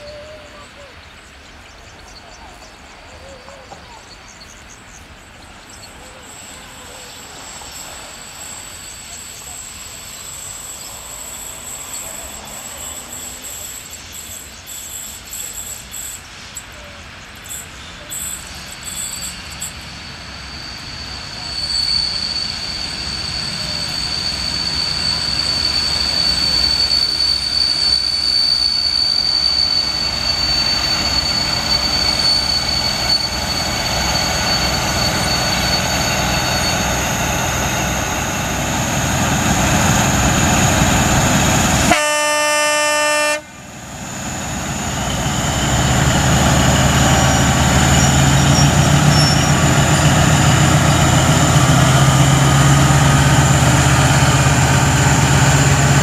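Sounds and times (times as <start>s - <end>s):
diesel locomotive engine: 0.0s - 56.0s
wheel squeal: 6.3s - 41.9s, 44.1s - 56.0s
train horn blast: 41.6s - 43.7s.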